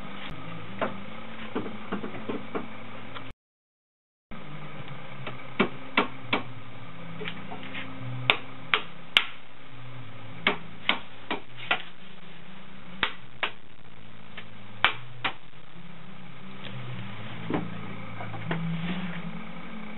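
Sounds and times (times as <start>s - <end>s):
low steady hum: 4.3s - 19.9s.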